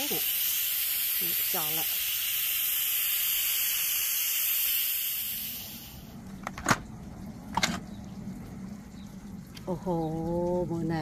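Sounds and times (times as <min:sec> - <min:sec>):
steam hissing from valve: 0:00.0 - 0:06.3.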